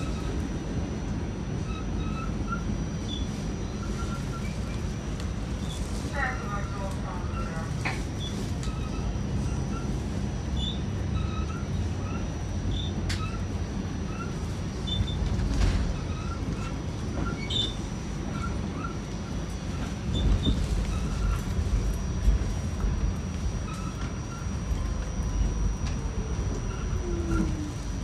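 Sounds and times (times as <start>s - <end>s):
subway train rumble: 0.0s - 28.0s
faint high whine: 19.2s - 28.0s.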